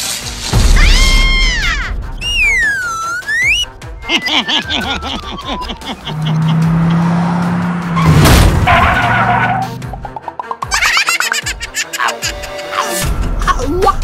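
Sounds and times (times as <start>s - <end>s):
background music: 0.0s - 14.0s
stepped falling tone: 2.2s - 8.7s
sharp crash: 7.9s - 9.1s.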